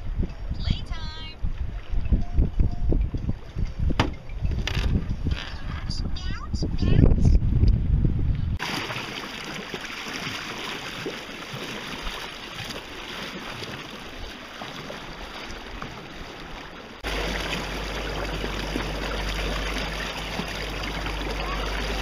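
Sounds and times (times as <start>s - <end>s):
steady low rumble: 1.4s - 8.6s, 17.0s - 22.0s
water splashing along boat hull: 1.5s - 5.6s, 8.6s - 22.0s
propeller wash churning: 8.6s - 15.3s, 16.8s - 22.0s.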